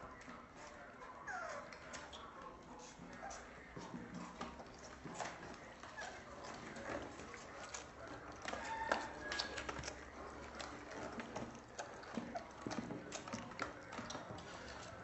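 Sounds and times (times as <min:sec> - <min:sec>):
puppies sucking from bottles: 0:00.0 - 0:15.0
puppy squeaks: 0:01.2 - 0:01.8.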